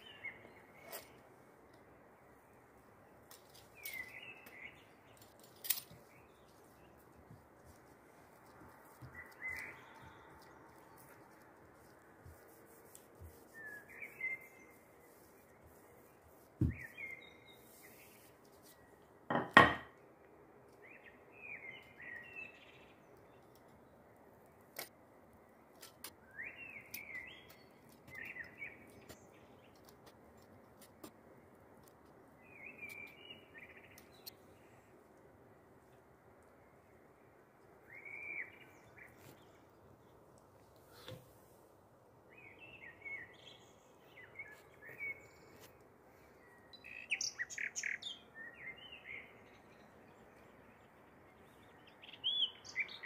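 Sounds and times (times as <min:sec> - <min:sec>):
small bird chirping: 0:08.6 - 0:19.0, 0:42.4 - 0:53.0.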